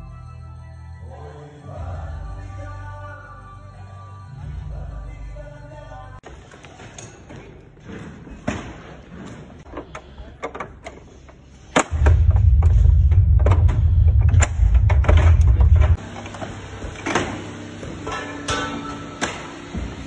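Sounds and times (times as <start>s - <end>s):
metal knocks and clicks: 11.8s - 16.0s
loud low rumble: 11.9s - 16.1s.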